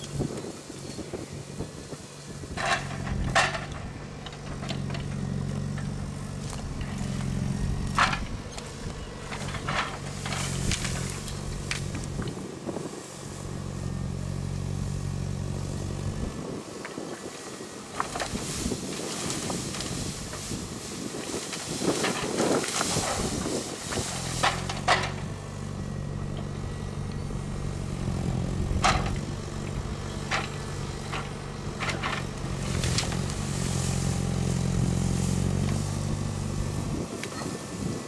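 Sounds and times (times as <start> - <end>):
diesel engine working under load: 0.0 - 38.0
branches snapping: 2.6 - 12.4, 17.8 - 25.4, 27.9 - 37.4.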